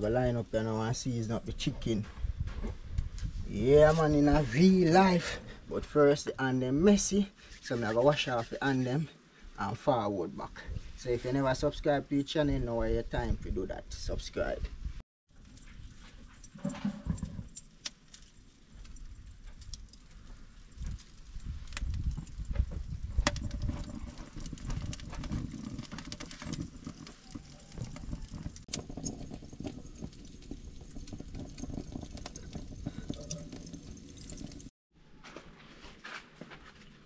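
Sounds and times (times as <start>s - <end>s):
charcoal crackling and popping: 15.4s - 34.7s.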